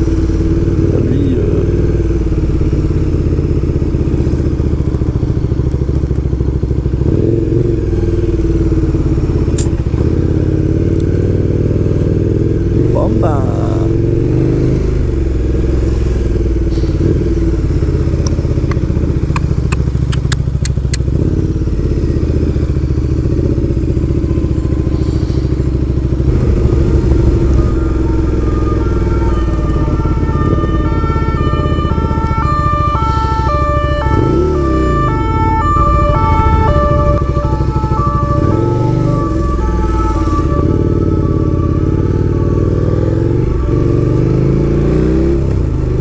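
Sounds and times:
motorcycle engine running: 0.0 - 46.0
sharp clicks: 18.2 - 21.1.

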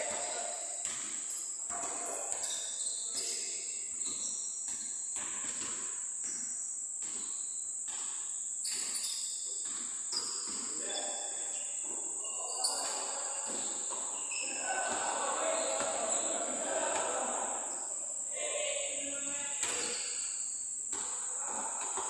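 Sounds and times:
insects droning: 8.5 - 22.0.

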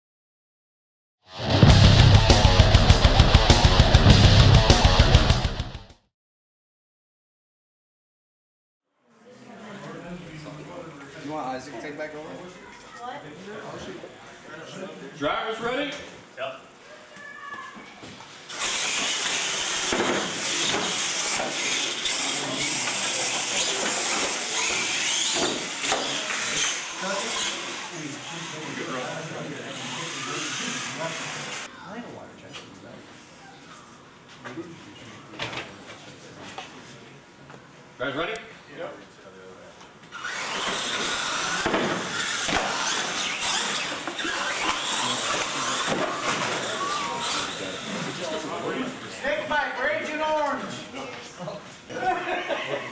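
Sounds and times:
electric motors whining: 18.5 - 31.7, 40.1 - 49.2
radio-controlled trucks racing: 18.5 - 31.7, 40.1 - 49.1.

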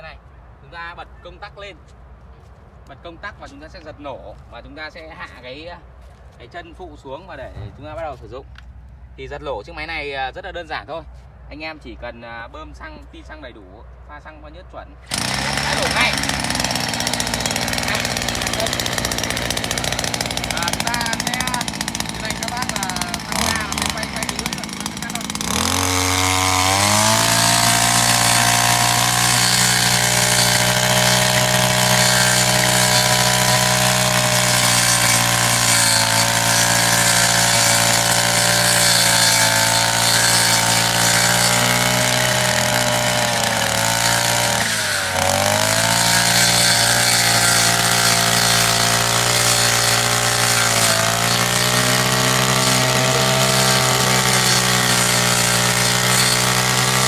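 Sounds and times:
brush cutter engine cutting grass: 15.0 - 57.0.

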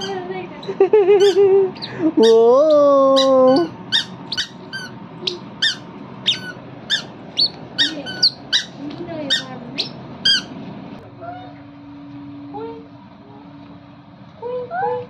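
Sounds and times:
squeaky shoes chirping: 0.0 - 10.6.

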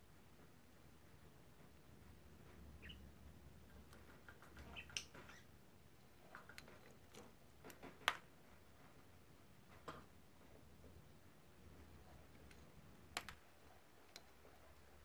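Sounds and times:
bird clicking and scratching: 3.6 - 9.0.

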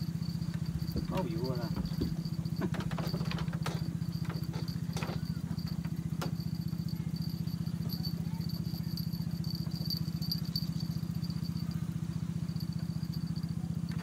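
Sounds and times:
small engine throbbing: 0.0 - 14.0.

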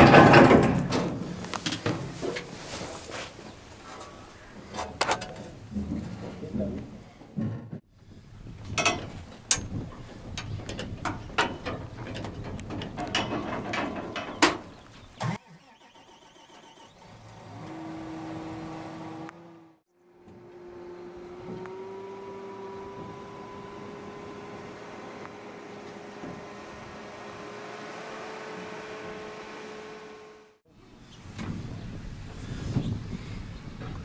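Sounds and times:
boots clanking on metal ladder rungs: 0.0 - 7.9, 8.6 - 15.1
engine hum: 0.0 - 34.0.

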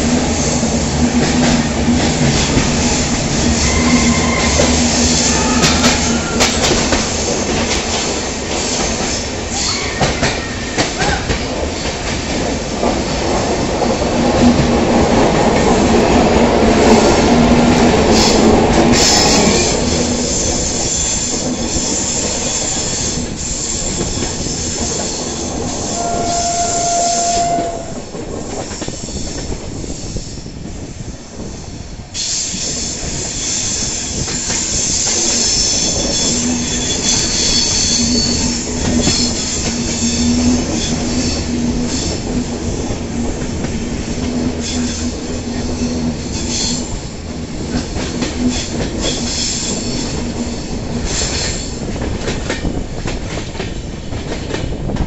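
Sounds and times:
train wheels rumbling on rails: 0.0 - 55.0
high wheel squeal: 3.5 - 7.0, 19.3 - 28.0, 32.2 - 42.2.

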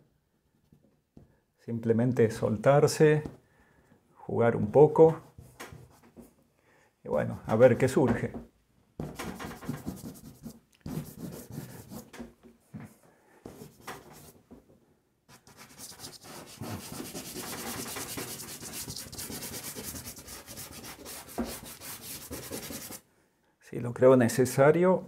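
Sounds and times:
pastel scraping on paper: 9.2 - 12.1, 15.3 - 23.0.

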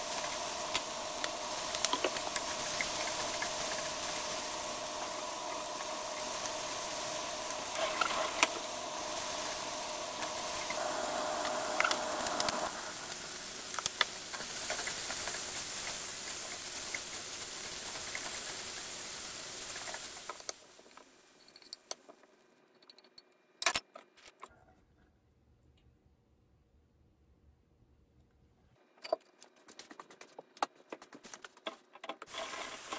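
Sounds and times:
frying pan sizzling: 0.0 - 21.4, 32.3 - 32.9.

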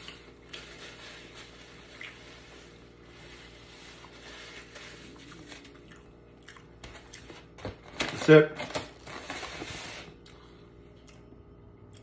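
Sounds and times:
paper napkin rustling: 0.5 - 5.8.

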